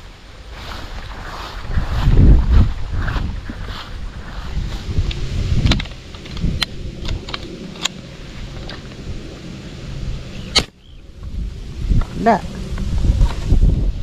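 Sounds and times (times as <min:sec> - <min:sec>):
wind rumble on microphone: 0:00.0 - 0:14.0
airgun handling clicks and knocks: 0:05.0 - 0:09.0.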